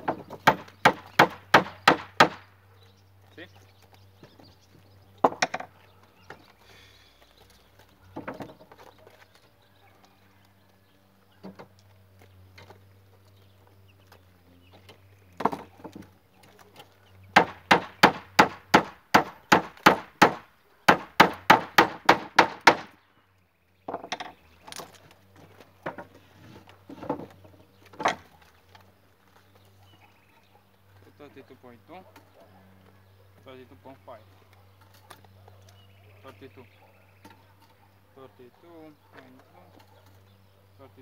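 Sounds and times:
hammer driving nails into wood: 0:00.0 - 0:02.4, 0:17.4 - 0:23.0.

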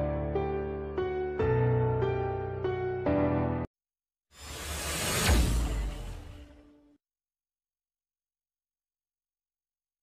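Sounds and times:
whoosh: 0:04.4 - 0:07.0.

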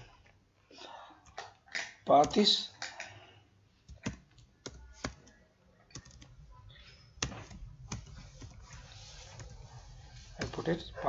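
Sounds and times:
keyboard keystrokes: 0:03.9 - 0:06.4.

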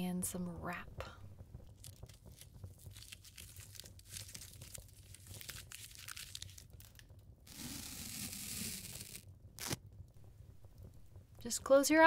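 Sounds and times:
small crackles: 0:00.9 - 0:12.0
packaging crinkling and tearing: 0:01.6 - 0:09.8.

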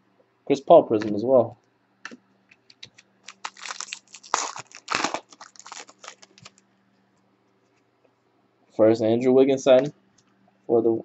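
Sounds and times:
foil wrapper tearing and crinkling: 0:03.2 - 0:06.6.

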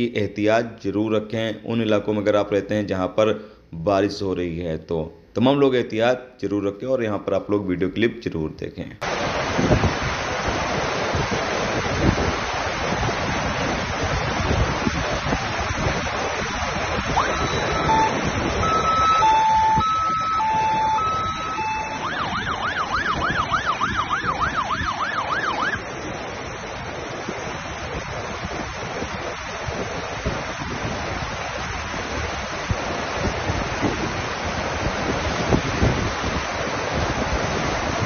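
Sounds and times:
flowing water: 0:09.0 - 0:38.0
heavy rain: 0:09.0 - 0:38.0
emergency vehicle siren: 0:17.1 - 0:25.8.

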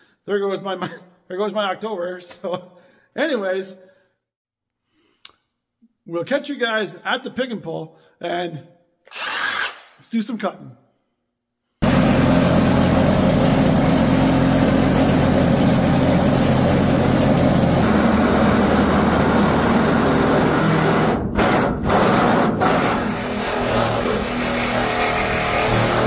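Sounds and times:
reciprocating saw cutting sheet metal: 0:09.1 - 0:09.8, 0:11.8 - 0:26.0.

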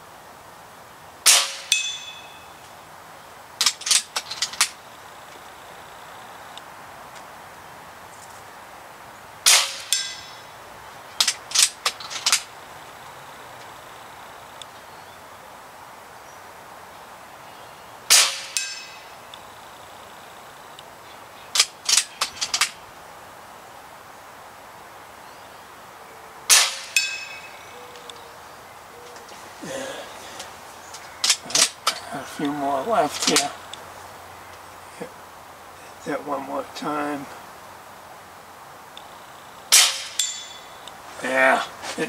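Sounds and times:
air rifle shots: 0:01.2 - 0:02.1, 0:09.4 - 0:10.3, 0:18.1 - 0:19.0, 0:26.5 - 0:27.5, 0:39.7 - 0:40.5
pellet clanging on steel gong: 0:01.5 - 0:02.4, 0:39.8 - 0:40.8.

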